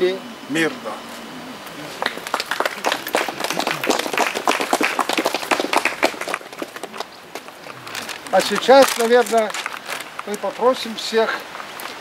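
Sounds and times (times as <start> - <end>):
people applauding: 1.9 - 10.4.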